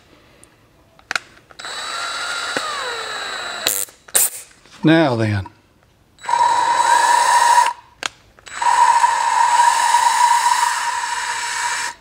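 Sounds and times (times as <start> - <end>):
cordless drill whining: 1.6 - 3.9, 6.2 - 7.8, 8.4 - 12.0
drill click: 1.6 - 4.3
valve grinding against seat: 6.2 - 7.8, 8.5 - 12.0.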